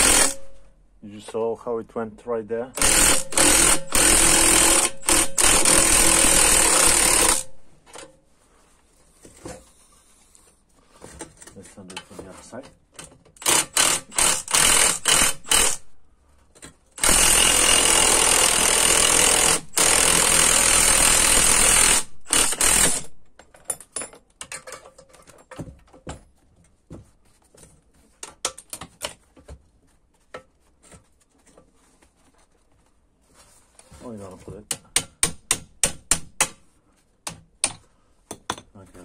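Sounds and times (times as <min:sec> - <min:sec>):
impact wrench hammering: 0:00.0 - 0:00.6, 0:02.8 - 0:08.1, 0:34.7 - 0:36.6.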